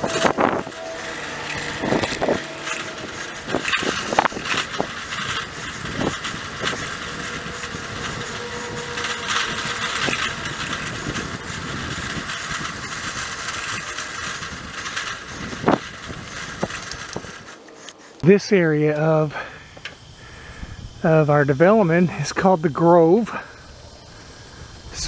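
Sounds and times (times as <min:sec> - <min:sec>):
bicycle tyre and wind noise: 0:00.0 - 0:25.0.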